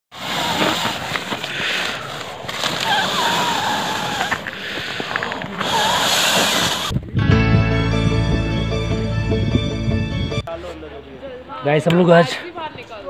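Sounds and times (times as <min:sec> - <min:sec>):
breath blowing on fire: 0:00.1 - 0:07.2
fire crackling: 0:00.1 - 0:08.0.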